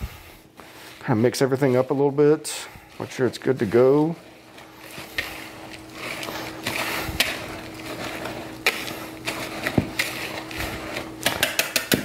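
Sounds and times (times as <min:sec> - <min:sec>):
whisk stirring in bowl: 0:00.2 - 0:12.0
whisk wires clicking on bowl: 0:03.8 - 0:12.0.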